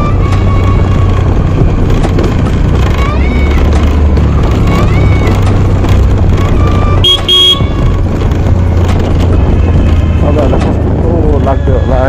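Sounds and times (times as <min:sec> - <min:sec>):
motorbike engine rumble: 0:00.0 - 0:12.0
wind rush: 0:00.0 - 0:12.0
vehicle horn beeping: 0:06.6 - 0:07.8.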